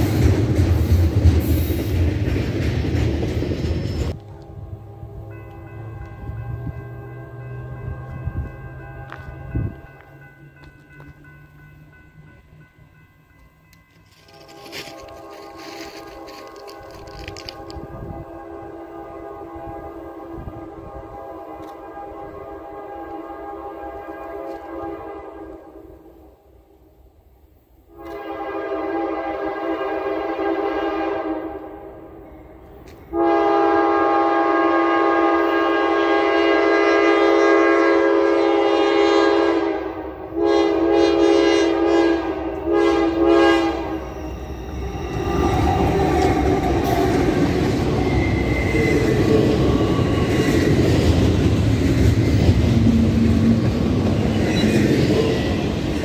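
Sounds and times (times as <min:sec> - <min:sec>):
train rumble and wheel noise: 0:00.0 - 0:56.0
locomotive air horn: 0:04.2 - 0:09.9, 0:14.1 - 0:26.2, 0:27.9 - 0:32.1, 0:33.1 - 0:50.2.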